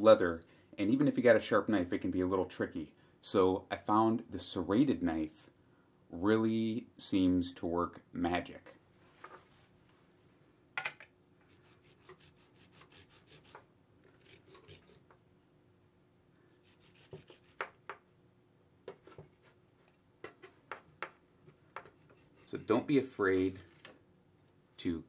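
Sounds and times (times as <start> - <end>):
serrated knife sawing hoof: 11.5 - 13.6, 14.2 - 15.1, 16.6 - 17.6, 21.8 - 23.6.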